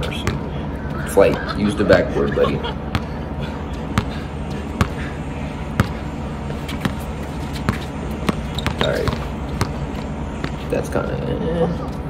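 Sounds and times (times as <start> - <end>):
basketball bouncing: 0.0 - 0.5, 2.8 - 5.1, 5.7 - 10.7.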